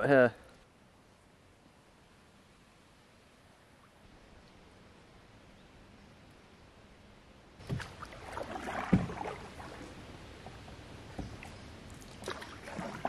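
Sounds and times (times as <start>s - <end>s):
paddle knocking against canoe: 7.6s - 9.8s, 10.4s - 11.6s
paddle splashing in water: 7.6s - 13.0s.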